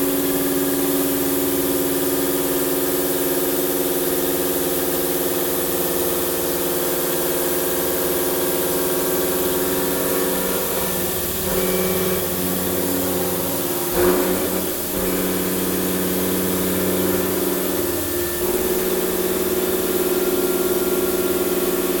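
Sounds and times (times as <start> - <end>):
milling machine cutting hum: 7.2 - 22.0.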